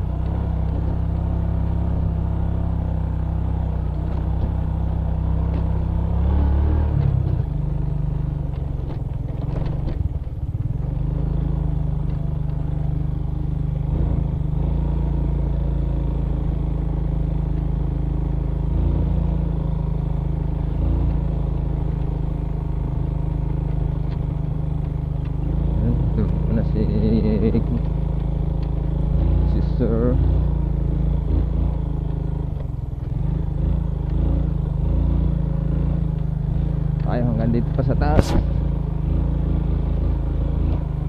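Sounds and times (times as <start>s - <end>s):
motorcycle knocks and rattles: 0.0s - 2.2s, 3.8s - 6.0s, 6.9s - 13.1s, 19.6s - 25.6s, 36.0s - 39.1s
motorcycle engine under load: 0.0s - 41.0s.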